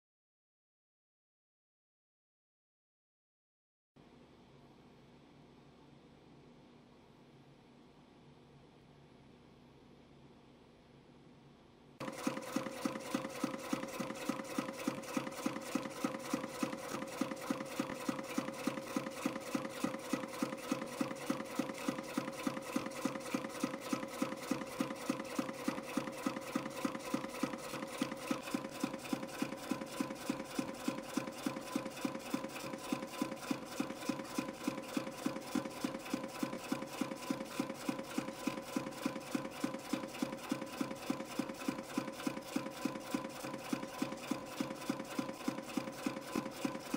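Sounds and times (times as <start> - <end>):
sharp machine clicks: 12.0 - 46.9
spring coiling machine humming: 12.0 - 46.9.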